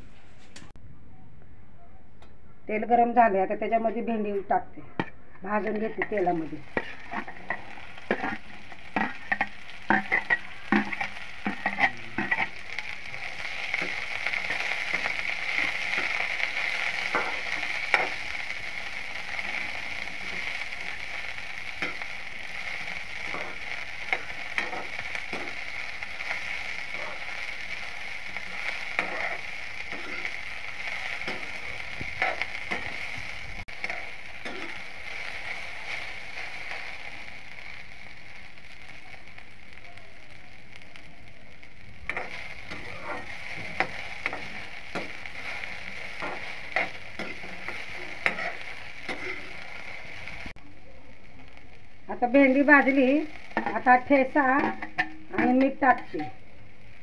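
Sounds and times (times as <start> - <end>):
okra sizzling in oil: 5.4 - 57.0
spatula scraping and knocking pan: 5.6 - 12.6, 13.5 - 18.3, 21.8 - 36.8, 42.1 - 49.7
vegetable pieces clattering into pan: 6.7 - 12.8.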